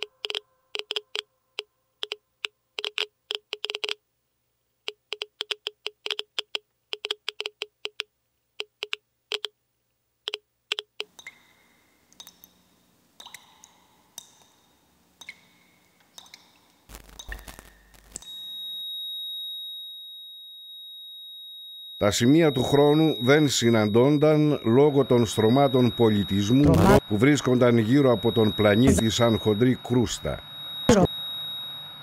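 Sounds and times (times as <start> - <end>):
sharp ringing clicks: 0.0 - 2.2.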